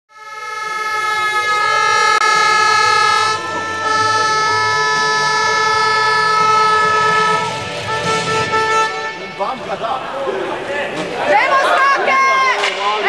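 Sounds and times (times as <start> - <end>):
air horn long note: 0.1 - 9.7
crowd shouting: 8.9 - 13.0.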